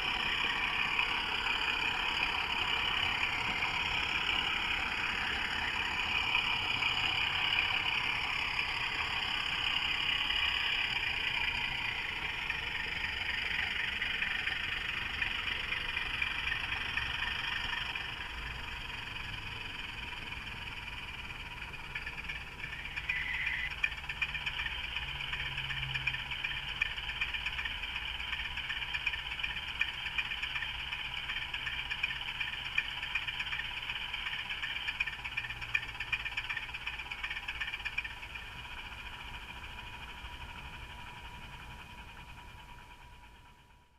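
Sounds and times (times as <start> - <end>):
model train motor whirring: 0.0 - 43.8
wheels clicking on track: 0.0 - 43.9.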